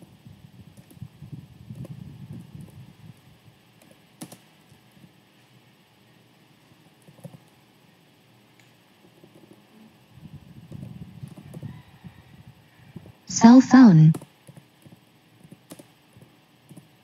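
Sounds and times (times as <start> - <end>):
quiet keyboard typing: 0.7 - 1.0, 1.7 - 5.2, 6.6 - 7.6, 9.0 - 9.6, 10.6 - 11.6, 14.1 - 17.0.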